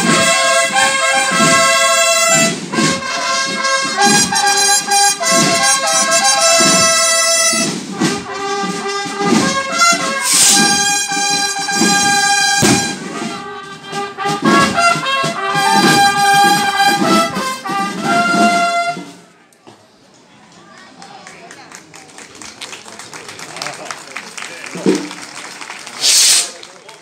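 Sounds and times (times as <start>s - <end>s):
sharp bang: 0.0s - 17.4s
drum beats: 0.0s - 19.2s, 24.6s - 26.4s
trumpets playing fanfare: 0.0s - 19.4s.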